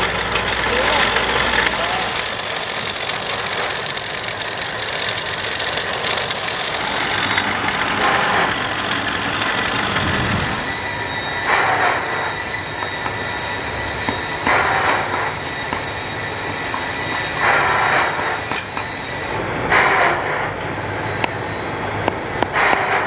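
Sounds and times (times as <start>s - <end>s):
workshop machinery running: 0.0s - 23.0s.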